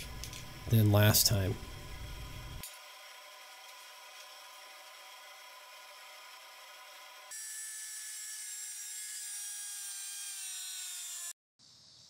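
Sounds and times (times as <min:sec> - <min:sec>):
steady hum: 0:00.0 - 0:02.6.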